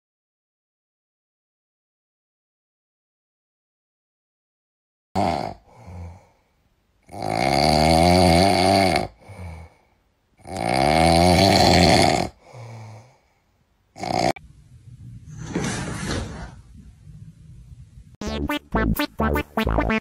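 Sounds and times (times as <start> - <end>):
small dog snoring: 7.1 - 9.1, 10.4 - 12.4, 14.0 - 14.4.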